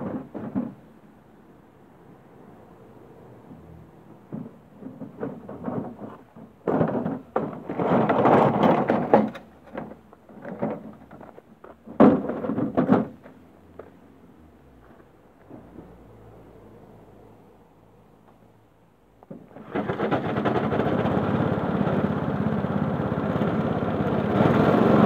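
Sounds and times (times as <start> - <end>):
lawnmower rattling being wheeled: 4.3 - 13.3, 19.4 - 25.0.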